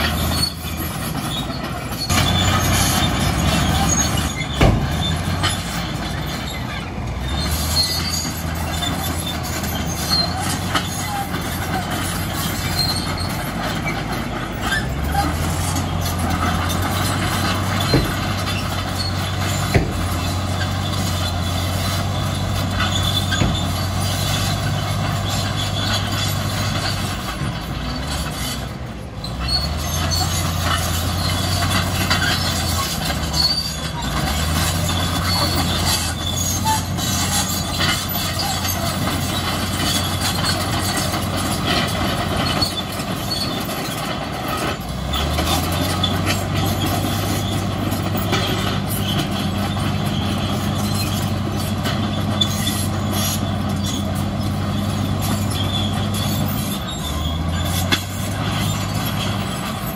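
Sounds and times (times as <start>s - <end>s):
bulldozer diesel engine droning: 0.0s - 59.9s
steel tracks squealing and clattering: 0.0s - 59.9s.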